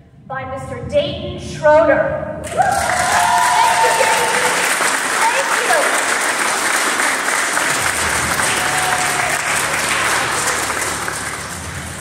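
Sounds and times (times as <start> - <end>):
audience applauding: 2.5 - 12.0.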